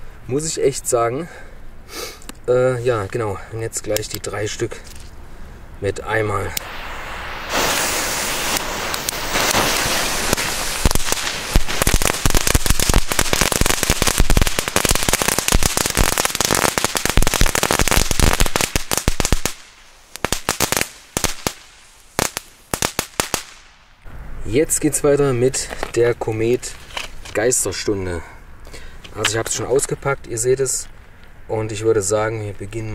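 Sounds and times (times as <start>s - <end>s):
fuse hissing: 6.4s - 13.0s.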